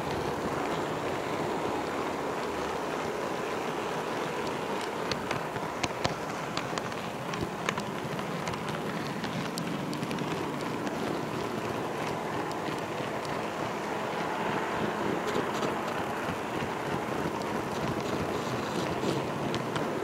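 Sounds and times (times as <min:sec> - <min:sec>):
wheels clicking over rail joints: 0:00.0 - 0:20.0.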